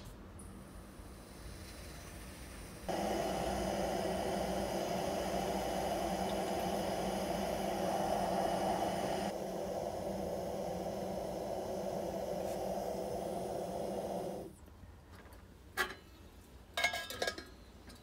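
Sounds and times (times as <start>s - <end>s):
water heating with rushing hiss: 0.0s - 14.6s
faint steady tones: 2.9s - 14.5s.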